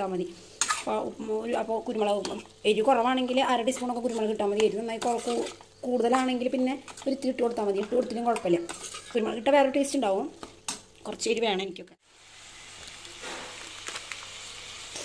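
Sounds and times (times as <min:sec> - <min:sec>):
spoon stirring in a pan: 0:00.4 - 0:09.5
meat sizzling in a pan: 0:12.1 - 0:15.0.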